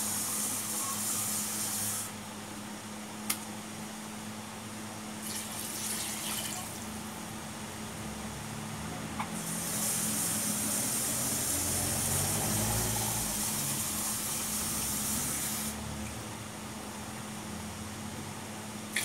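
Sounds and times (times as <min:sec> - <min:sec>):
water splashing into metal pot: 0:05.2 - 0:06.8.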